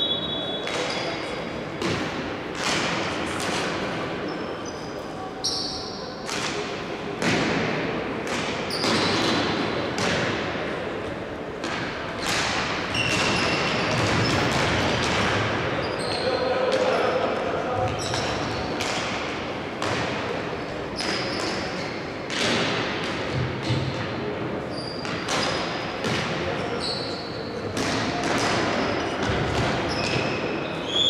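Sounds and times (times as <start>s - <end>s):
shoe squeaks: 0.0s - 1.4s, 4.2s - 6.2s, 8.7s - 9.2s, 12.9s - 14.4s, 15.8s - 16.4s, 21.0s - 22.1s, 24.7s - 25.8s, 26.7s - 27.6s, 29.8s - 31.0s
hockey sticks hitting ball: 0.6s - 4.2s, 6.2s - 10.6s, 11.6s - 17.0s, 17.8s - 24.2s, 25.0s - 26.7s, 27.6s - 30.5s
voices: 15.8s - 18.9s.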